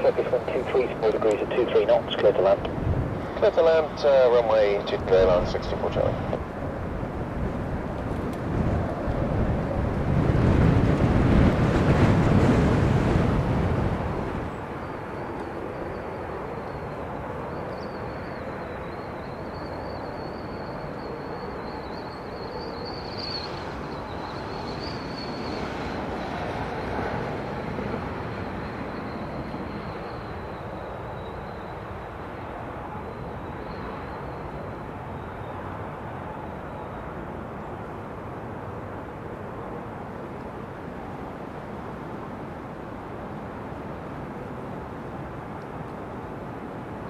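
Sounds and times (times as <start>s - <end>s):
wind buffeting microphone: 0.0s - 36.0s
distant aircraft noise: 0.0s - 47.0s
rush of wind: 0.0s - 47.0s
turboprop airliner high whine: 0.0s - 47.0s.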